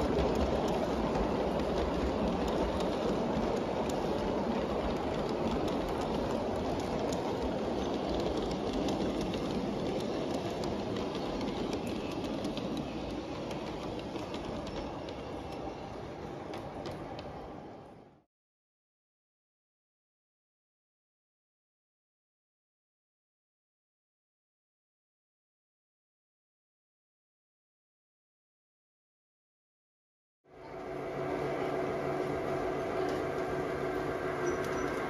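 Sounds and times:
model train wheels rumbling: 0.0s - 18.2s, 30.6s - 35.0s.

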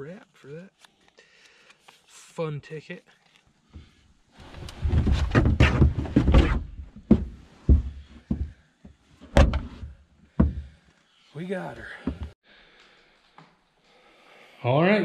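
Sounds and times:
thumps and scraping of carcass: 3.8s - 7.8s
knocks: 9.3s - 9.8s, 10.4s - 10.7s.

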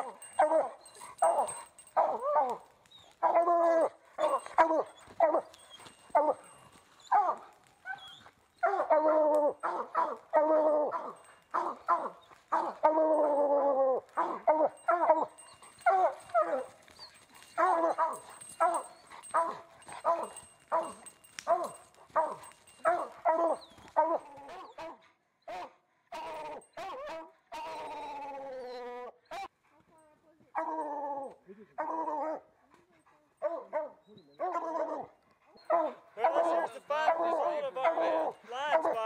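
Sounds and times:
hound bawling: 0.0s - 24.9s, 33.4s - 39.0s
hound barking: 0.0s - 28.1s, 30.5s - 39.0s.

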